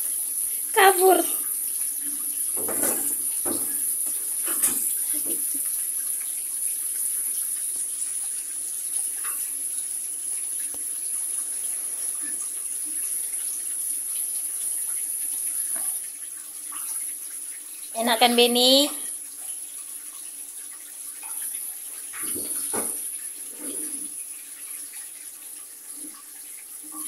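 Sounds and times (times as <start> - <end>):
bathtub tap running: 0.7 - 5.8, 21.3 - 24.0.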